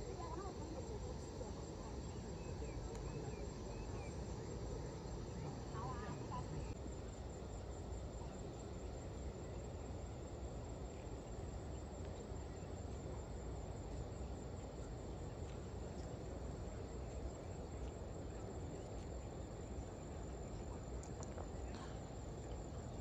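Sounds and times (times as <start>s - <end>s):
high-pitched insect drone: 0.0s - 6.8s.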